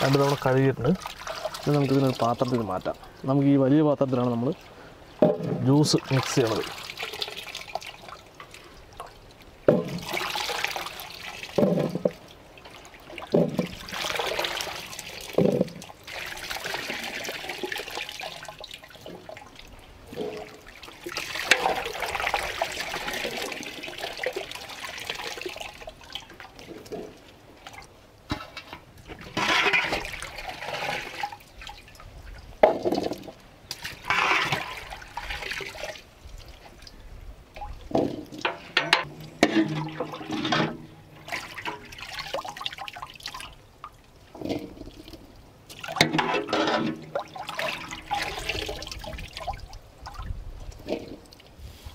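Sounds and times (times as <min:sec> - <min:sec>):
water sloshing and splashing: 0:00.0 - 0:51.9
grapes knocking in metal pot: 0:05.2 - 0:05.7.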